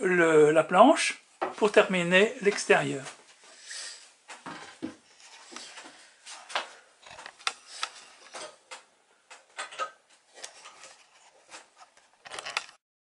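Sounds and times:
wooden board knocking and scraping: 4.4s - 5.6s.

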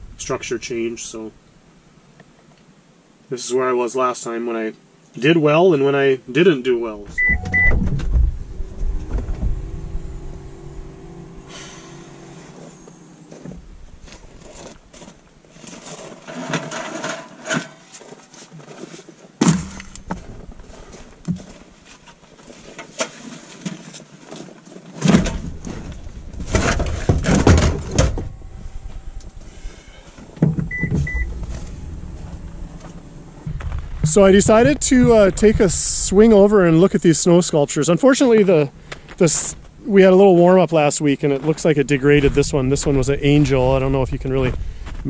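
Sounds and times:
gear knocking and rustling: 7.1s - 17.3s, 18.5s - 36.4s
double electronic beep: 7.2s - 8.0s, 30.7s - 31.3s.

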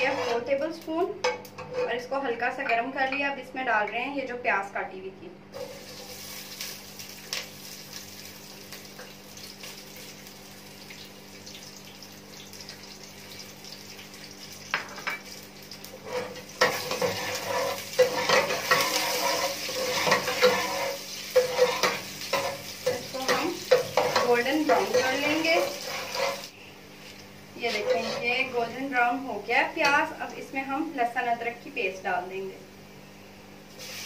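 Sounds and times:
metal spoon scraping pot: 0.0s - 0.6s, 1.6s - 2.1s, 16.0s - 26.5s, 27.6s - 28.5s
onion sizzling in hot oil: 5.5s - 31.1s, 32.7s - 34.0s.

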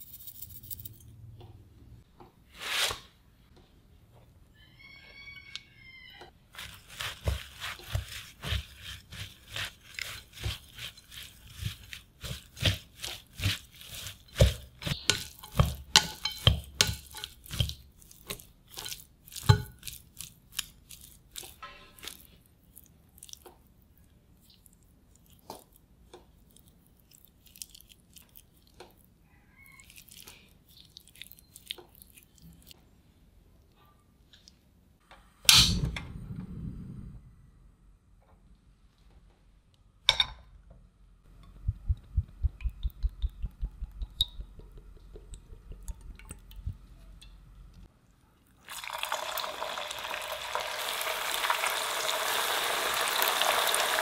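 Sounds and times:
hands tossing potato strands: 6.5s - 23.8s, 29.8s - 32.8s
chopsticks clinking against glass bowl: 14.3s - 17.8s.

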